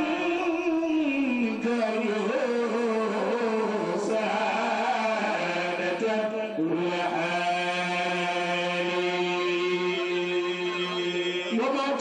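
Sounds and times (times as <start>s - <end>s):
man chanting through a microphone: 0.0s - 12.0s.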